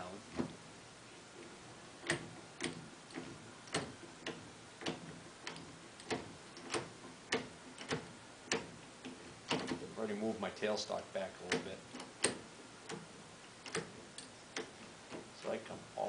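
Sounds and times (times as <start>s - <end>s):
lathe handwheel clicking: 2.0s - 9.9s.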